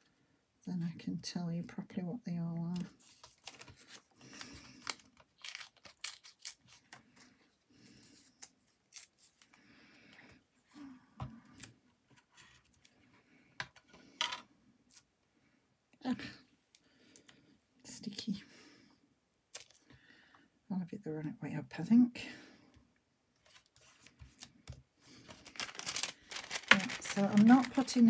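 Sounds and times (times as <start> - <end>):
paper rustling: 2.8 - 7.3, 23.4 - 28.0
scissors snipping paper: 5.4 - 6.8.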